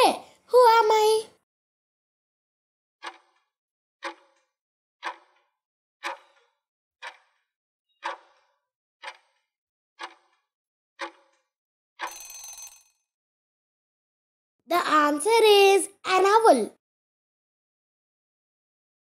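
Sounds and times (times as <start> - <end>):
clock-like ticking: 3.0 - 4.4, 5.0 - 10.4, 11.0 - 11.4
ringing tone: 12.0 - 13.0.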